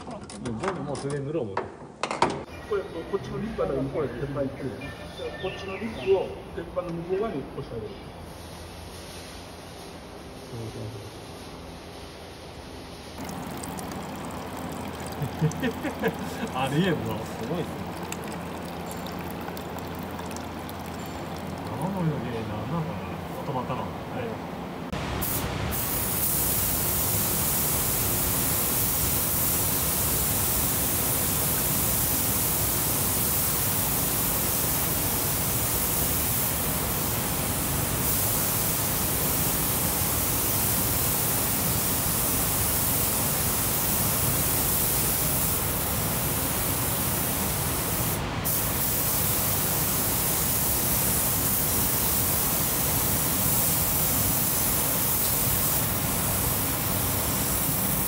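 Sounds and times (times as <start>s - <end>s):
paint spray gun hissing: 8.3s - 10.2s, 11.2s - 21.7s, 24.9s - 58.0s.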